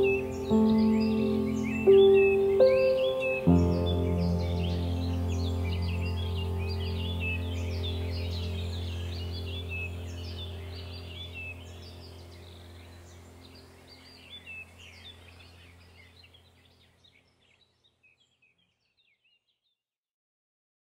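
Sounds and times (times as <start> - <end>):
low music drone: 0.0 - 15.9
birds chirping and warbling: 0.0 - 19.7.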